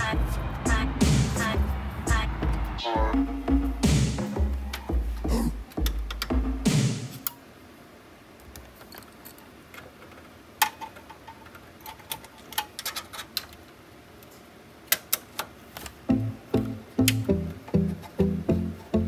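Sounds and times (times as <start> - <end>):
background music: 0.0 - 7.2, 16.1 - 19.0.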